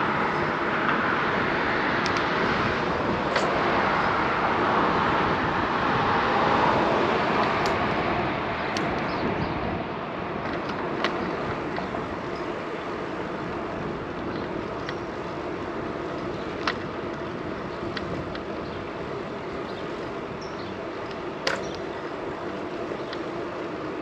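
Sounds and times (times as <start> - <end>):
wind and road noise: 0.0 - 24.0
wind buffeting microphone: 0.0 - 24.0
bicycle clicks: 0.1 - 6.0, 6.6 - 9.4, 10.3 - 24.0.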